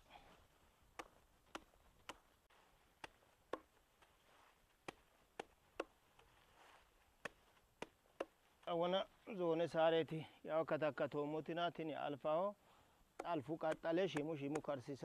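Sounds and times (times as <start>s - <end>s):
machete chopping grass on wood: 0.9s - 2.3s, 3.0s - 3.8s, 4.8s - 6.4s, 7.2s - 8.4s, 13.2s - 14.8s.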